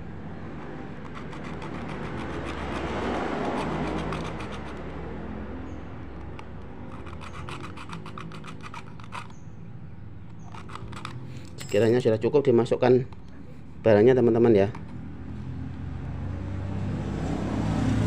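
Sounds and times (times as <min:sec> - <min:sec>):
hacksaw sawing plastic pipe: 0:01.0 - 0:04.9, 0:06.2 - 0:09.4, 0:10.4 - 0:11.3.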